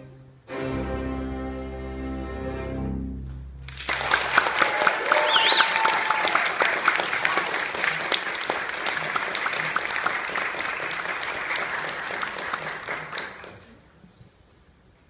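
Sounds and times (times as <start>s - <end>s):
audience applauding: 3.7s - 13.8s.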